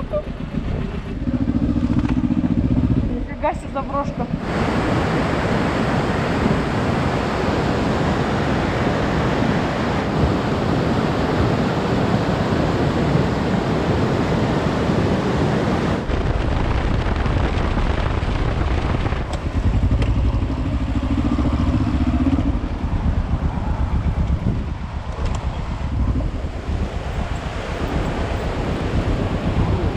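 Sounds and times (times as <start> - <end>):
motorcycle engine running: 0.0 - 4.5, 16.0 - 29.9
wind rush on microphone: 0.0 - 29.9.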